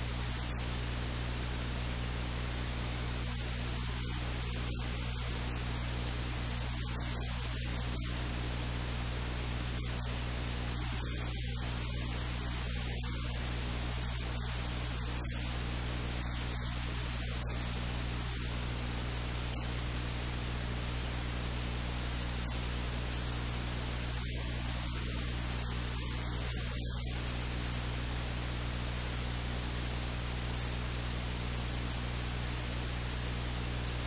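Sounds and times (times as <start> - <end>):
low electrical hum: 0.0 - 34.0
steady hiss: 0.0 - 34.0.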